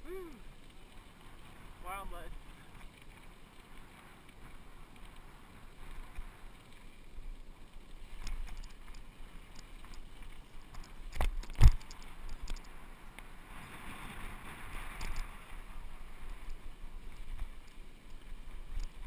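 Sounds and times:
light rattling clicks: 0:08.1 - 0:13.3.

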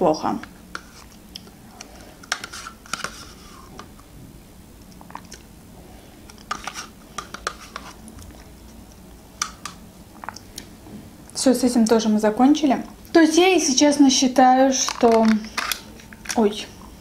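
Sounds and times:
quiet eating sounds: 0:00.4 - 0:04.1, 0:04.8 - 0:11.4
spoon scraping plastic cup: 0:02.3 - 0:03.7, 0:06.3 - 0:08.0.

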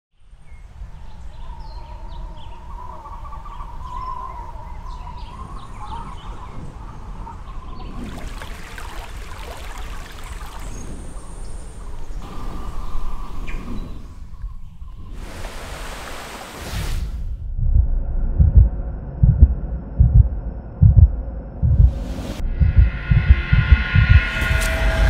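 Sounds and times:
birds chirping: 0:00.2 - 0:15.6
low steady rumble: 0:17.4 - 0:25.0.

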